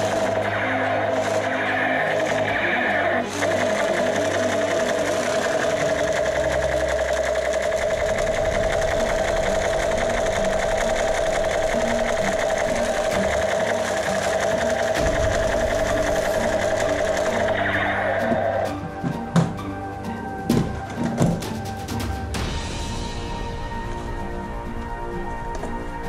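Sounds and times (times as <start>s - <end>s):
toy machine gun rattling: 3.4s - 17.6s.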